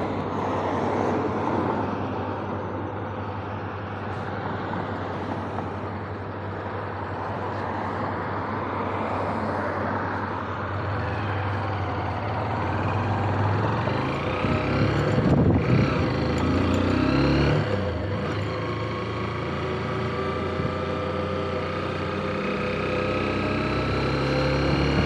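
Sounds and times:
motorcycle engine pulling away: 11.2s - 25.0s.

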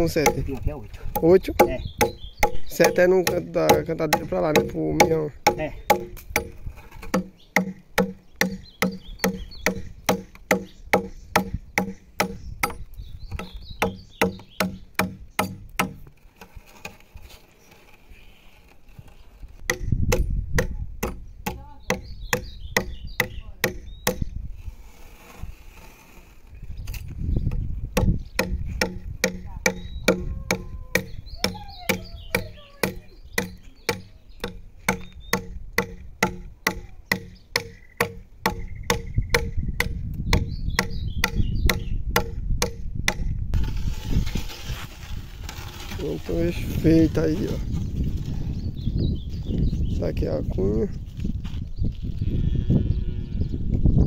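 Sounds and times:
adze chopping wood: 0.0s - 16.2s, 19.6s - 24.3s, 27.5s - 43.4s.

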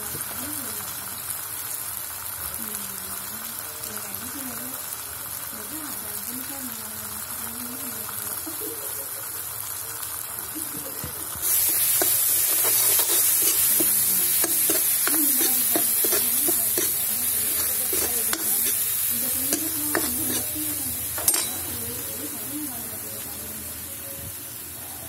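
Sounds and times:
spices sizzling in a pan: 0.0s - 25.0s
ladle scraping a steel pan: 11.4s - 18.9s, 19.5s - 20.6s.

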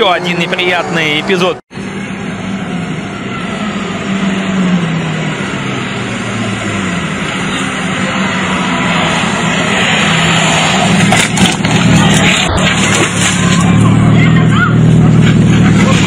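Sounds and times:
rally car engine running hard: 11.0s - 16.0s.

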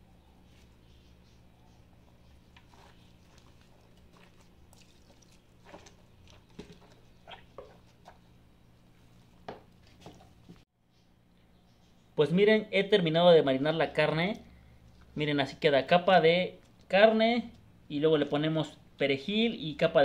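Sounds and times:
wet squelches of raw meat: 2.4s - 8.4s.

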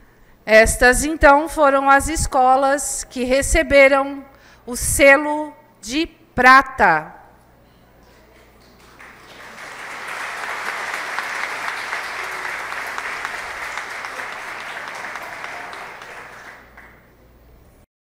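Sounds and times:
audience applauding: 8.4s - 17.1s.

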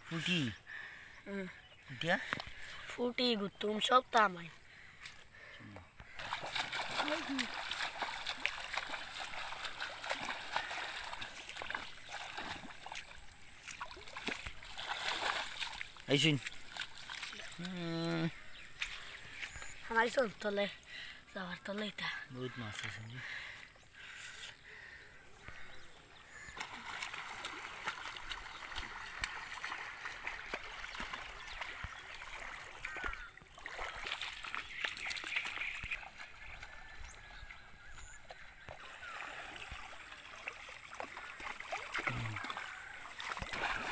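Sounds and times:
muddy water sloshing: 0.1s - 43.9s
small splashes from steps: 6.1s - 19.9s, 26.3s - 36.8s, 38.3s - 43.9s.

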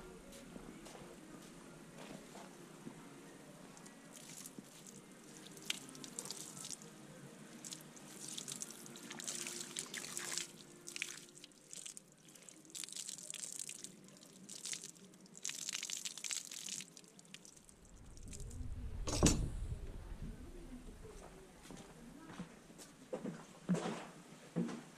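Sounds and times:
hose water spraying on rubber boots: 4.1s - 6.8s, 7.5s - 17.7s.

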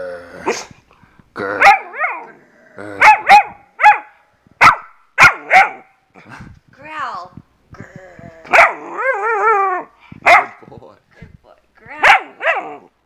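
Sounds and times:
puppy growling: 1.4s - 3.4s, 7.7s - 9.9s
puppy barking: 1.6s - 2.3s, 3.0s - 6.0s, 8.5s - 9.2s, 10.2s - 10.6s, 11.9s - 12.9s.

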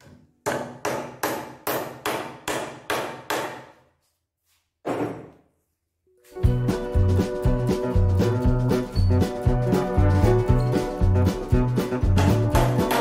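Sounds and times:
hammer driving a nail into wood: 0.4s - 3.8s.

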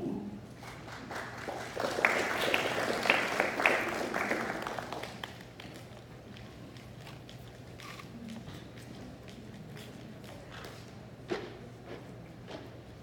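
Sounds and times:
audience applauding: 0.6s - 5.8s.

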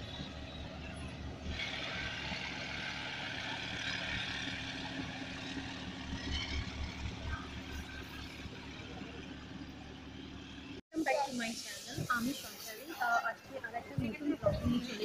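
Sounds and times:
low engine rumble: 0.0s - 10.8s
outdoor background noise: 0.0s - 15.0s.

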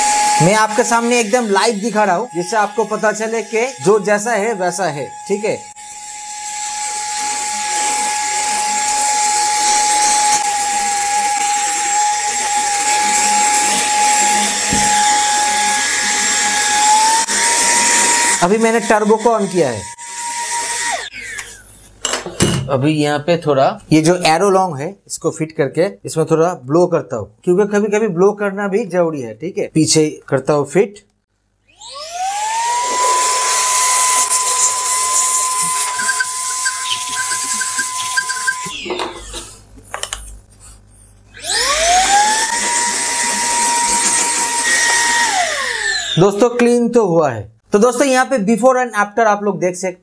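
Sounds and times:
handheld vacuum cleaner whine: 0.0s - 21.7s, 31.6s - 40.4s, 41.3s - 46.4s.

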